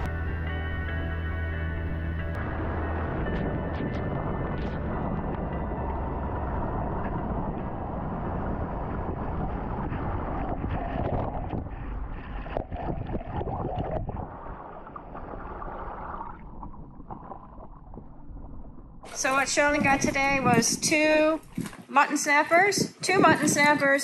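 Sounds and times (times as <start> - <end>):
wind buffeting microphone: 1.8 - 15.4, 17.8 - 24.0
water sloshing and splashing: 3.2 - 22.0.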